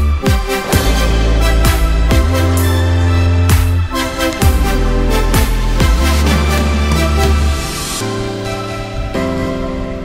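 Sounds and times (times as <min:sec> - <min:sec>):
electronic music with heavy bass: 0:00.0 - 0:08.7.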